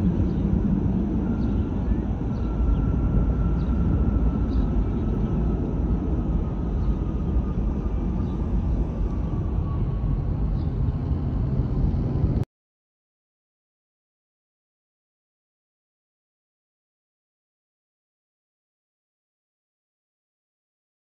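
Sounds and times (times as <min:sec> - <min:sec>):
jet airliner rumble: 0:00.0 - 0:12.5
jet engine whine: 0:00.0 - 0:12.5.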